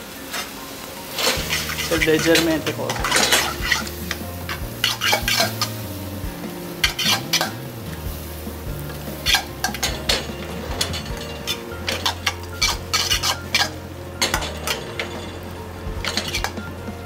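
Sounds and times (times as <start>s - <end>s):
fork scraping and clinking in pan: 1.2s - 6.0s, 6.8s - 7.7s, 9.2s - 15.4s, 16.0s - 16.7s.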